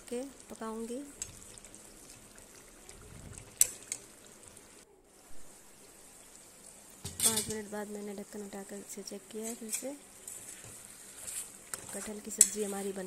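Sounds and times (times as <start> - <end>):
faint steady hiss: 0.0 - 13.0
ladle stirring curry in pan: 0.8 - 4.7, 9.3 - 13.0.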